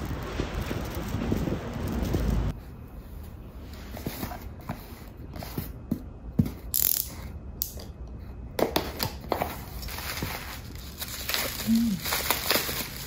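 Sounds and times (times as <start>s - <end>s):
packing tape rasping: 9.7s - 13.0s.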